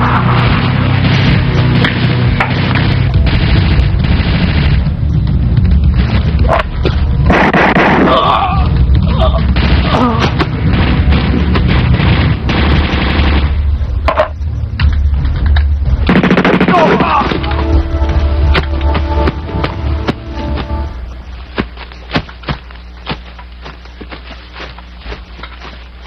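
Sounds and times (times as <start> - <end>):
background music: 0.0 - 21.4
automatic gunfire bursts: 10.7 - 13.6, 16.1 - 17.0.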